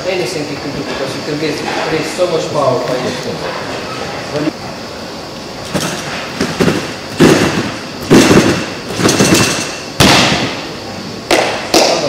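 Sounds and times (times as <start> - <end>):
tumbling track rattling: 5.7 - 9.8
heavy thuds on sprung track: 5.7 - 10.6.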